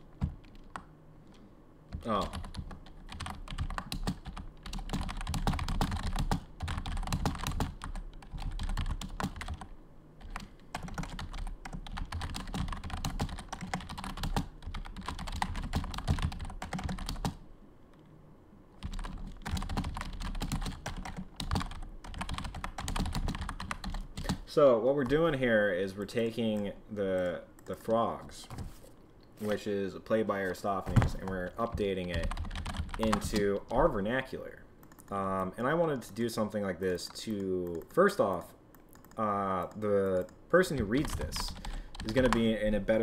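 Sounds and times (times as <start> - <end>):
typing on computer keyboard: 1.9 - 17.4, 18.8 - 24.4, 32.1 - 33.5, 38.7 - 42.4.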